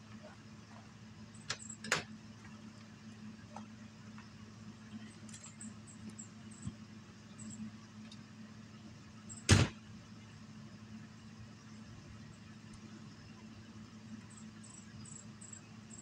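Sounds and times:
steady low hum: 0.0s - 16.0s
door slamming shut: 9.5s - 9.8s.

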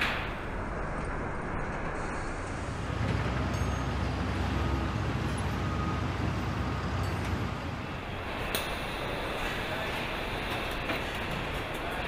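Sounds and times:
low machinery rumble with hum: 0.0s - 12.0s.

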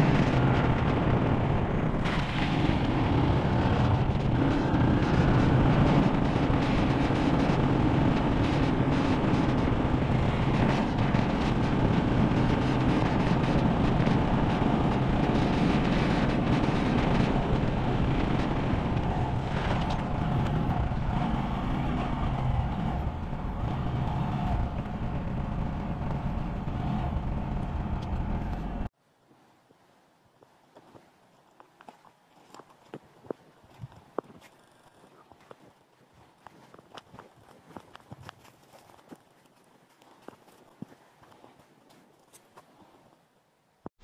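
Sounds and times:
motorcycle engine running: 0.0s - 28.9s.

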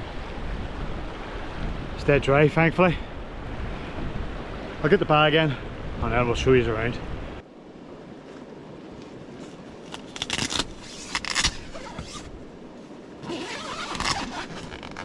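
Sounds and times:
nylon fabric rustling: 9.3s - 15.0s
tent zip rasping: 9.8s - 12.4s, 13.2s - 15.0s.

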